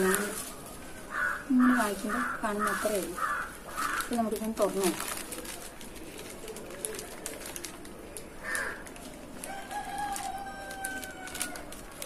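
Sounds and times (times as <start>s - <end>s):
plastic packaging crinkling: 0.0s - 12.0s.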